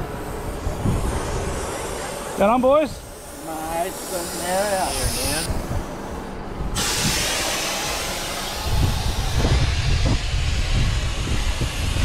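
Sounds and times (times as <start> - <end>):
wind buffeting microphone: 0.0 - 1.9, 4.9 - 7.3, 8.4 - 12.0
air hissing from tyre valve: 0.0 - 12.0.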